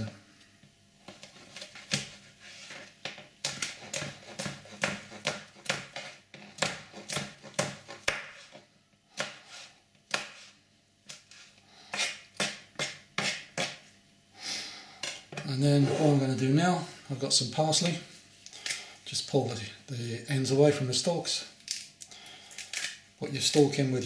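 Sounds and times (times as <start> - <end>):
knife chopping on cutting board: 3.4 - 8.6, 9.2 - 10.5, 11.9 - 13.8.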